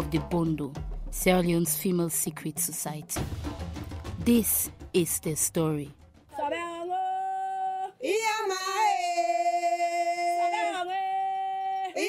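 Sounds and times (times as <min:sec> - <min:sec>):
woman singing long notes: 0:06.4 - 0:12.0.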